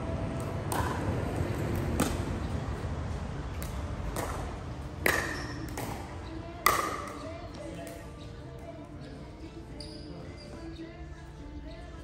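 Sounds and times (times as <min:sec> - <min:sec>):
sharp hits on a ball: 0:00.4 - 0:01.2, 0:01.9 - 0:02.3, 0:03.6 - 0:07.3.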